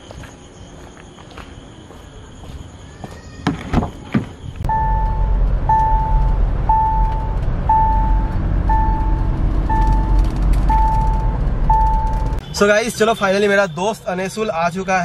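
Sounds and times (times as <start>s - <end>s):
car engine and tyres rumbling: 4.2s - 13.6s
dashboard warning chime beeping: 4.6s - 15.0s.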